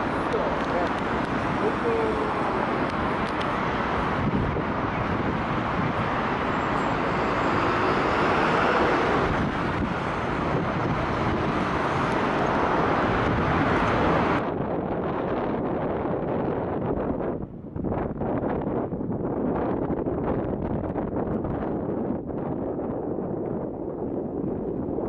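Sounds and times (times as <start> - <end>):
city traffic noise: 0.0 - 17.8
wind on microphone: 0.0 - 25.0.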